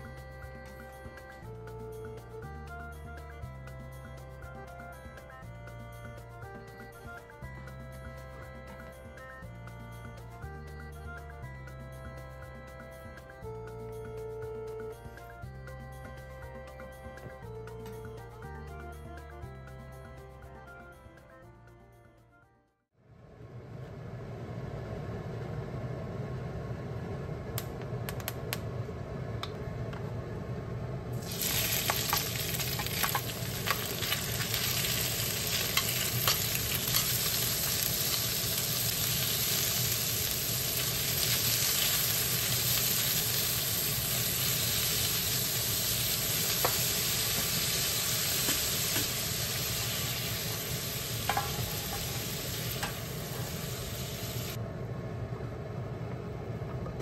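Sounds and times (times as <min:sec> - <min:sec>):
meat sizzling in oil: 0:31.2 - 0:54.6
chopsticks and spatula clicking on pan: 0:31.8 - 0:34.2.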